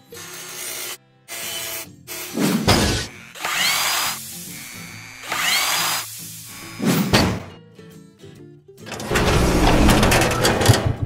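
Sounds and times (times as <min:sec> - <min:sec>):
music: 0:00.0 - 0:11.0
whirring robotic machinery: 0:00.1 - 0:07.2, 0:08.9 - 0:10.6.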